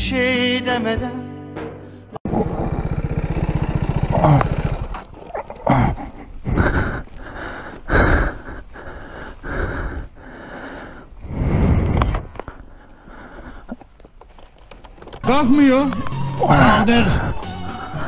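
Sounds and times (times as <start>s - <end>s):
heavy breathing: 5.5s - 14.2s, 16.4s - 18.0s.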